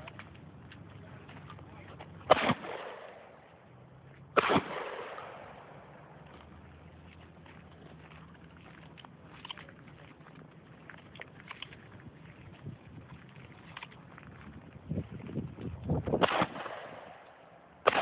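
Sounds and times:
gunshots echoing: 0:02.2 - 0:03.5, 0:04.4 - 0:06.2, 0:16.2 - 0:18.0.

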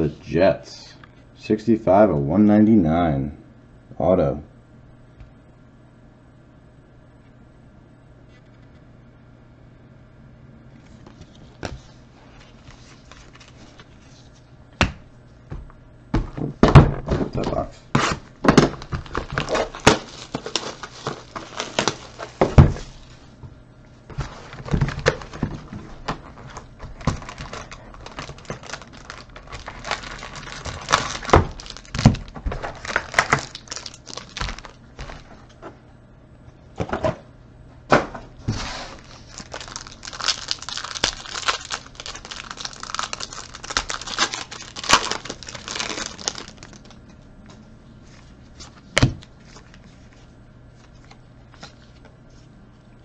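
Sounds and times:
foil packs crinkling and rustling: 0:11.1 - 0:14.3, 0:17.2 - 0:23.2, 0:24.1 - 0:35.4, 0:38.6 - 0:47.0.

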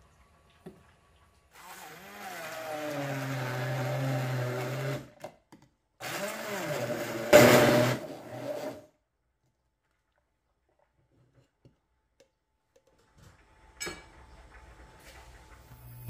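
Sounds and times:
immersion blender running: 0:01.6 - 0:05.1, 0:06.0 - 0:08.8, 0:15.7 - 0:16.0.

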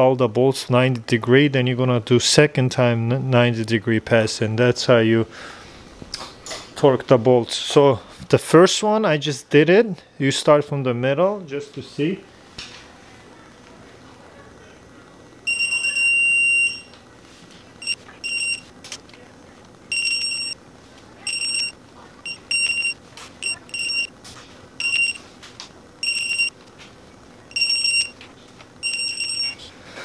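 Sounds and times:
torque wrench beeping: 0:19.9 - 0:20.6, 0:21.3 - 0:24.1, 0:24.8 - 0:25.2, 0:26.0 - 0:26.6, 0:27.5 - 0:28.2, 0:28.8 - 0:29.6.

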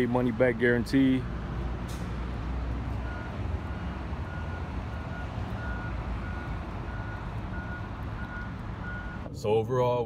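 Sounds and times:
reversing alarm beeping: 0:02.9 - 0:09.3.

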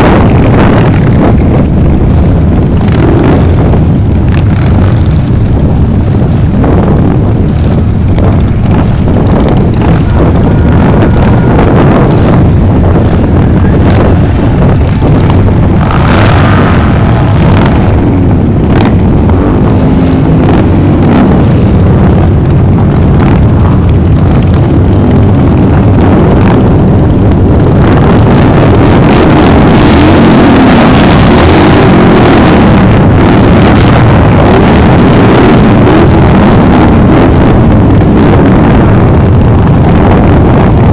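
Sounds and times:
motorcycles riding past: 0:13.1 - 0:20.8.

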